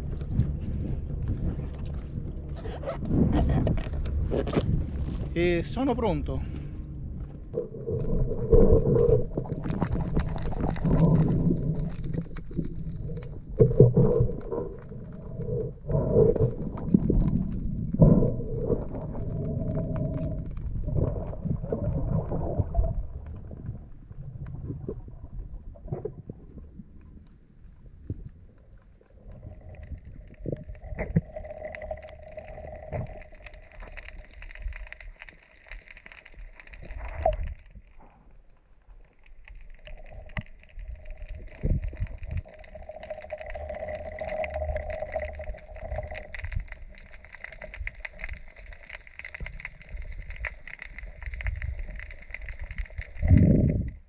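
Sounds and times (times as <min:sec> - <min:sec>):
underwater clicks and knocks: 0:00.0 - 0:05.3, 0:06.6 - 0:25.0.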